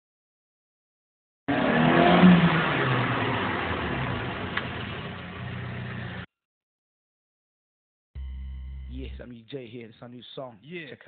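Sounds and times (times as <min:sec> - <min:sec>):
car engine revving: 0:01.5 - 0:06.3.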